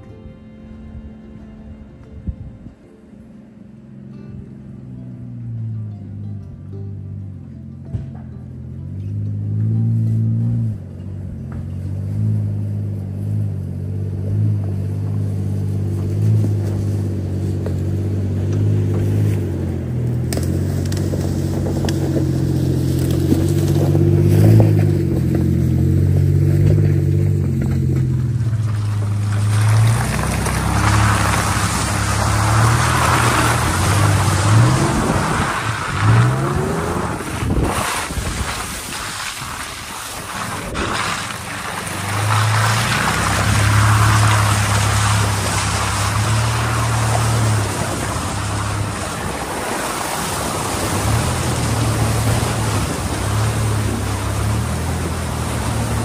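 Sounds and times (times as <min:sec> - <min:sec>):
truck engine labouring: 0:00.0 - 0:56.0
tyres splashing through mud: 0:08.9 - 0:56.0.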